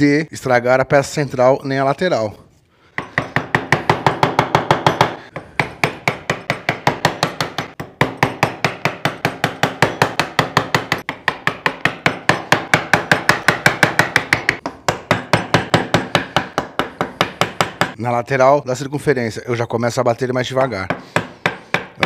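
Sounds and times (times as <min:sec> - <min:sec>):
mallet striking wood chisel: 0:02.9 - 0:18.0, 0:20.9 - 0:22.0.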